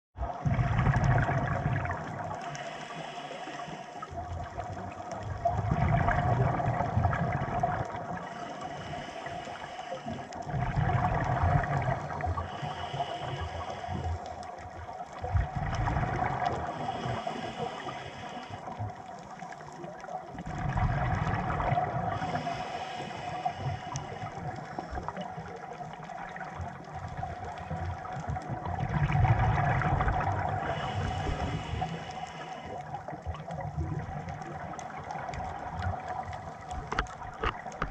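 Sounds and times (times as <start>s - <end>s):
faint steady hum: 0.3s - 37.9s
underwater regulator breathing bubbles: 15.4s - 18.8s, 20.4s - 25.3s, 28.8s - 33.0s.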